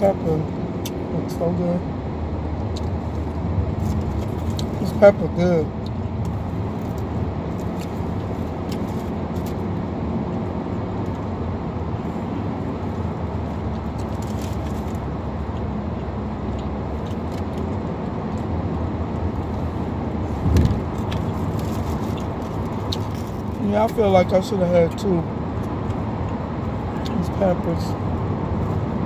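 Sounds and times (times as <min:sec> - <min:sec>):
car cabin road rumble: 0:00.0 - 0:29.0
dull thump: 0:20.4 - 0:21.0.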